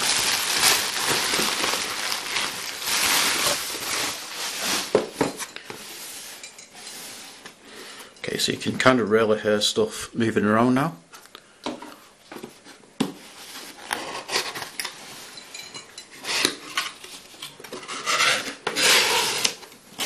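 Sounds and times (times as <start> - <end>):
cardboard flaps scraping: 0.0 - 6.2
glass clinking in box: 15.3 - 16.2.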